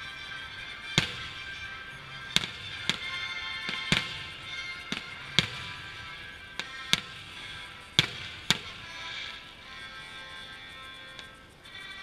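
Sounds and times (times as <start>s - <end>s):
fireworks bursting: 0.0s - 12.0s
music playing: 0.0s - 12.0s.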